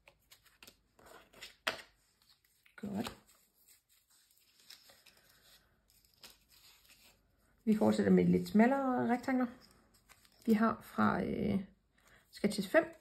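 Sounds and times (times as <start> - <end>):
paper rustling: 0.0 - 8.1, 9.6 - 10.6.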